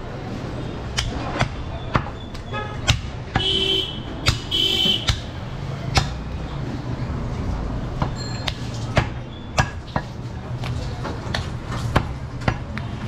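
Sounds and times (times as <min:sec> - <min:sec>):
cleaver chopping meat and bone: 0:00.9 - 0:02.1, 0:02.8 - 0:03.4, 0:04.2 - 0:06.3, 0:08.0 - 0:10.1, 0:11.3 - 0:12.8.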